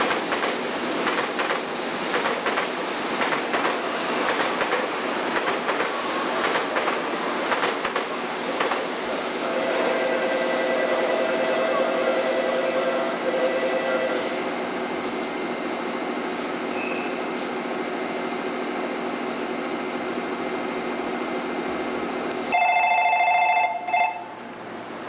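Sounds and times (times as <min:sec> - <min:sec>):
train running noise and whine: 0:00.0 - 0:25.0
electric bell ringing: 0:22.5 - 0:24.3.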